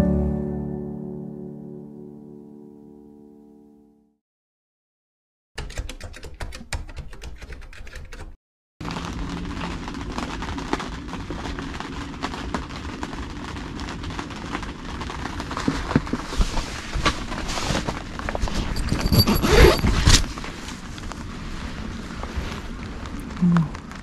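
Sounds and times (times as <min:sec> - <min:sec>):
tent fabric flapping and cracking: 0:08.8 - 0:24.0.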